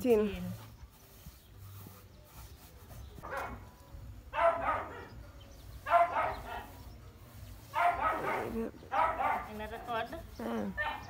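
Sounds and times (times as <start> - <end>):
dog barking: 3.2 - 3.6, 4.3 - 5.1, 5.8 - 6.8, 7.7 - 9.6, 10.8 - 11.0.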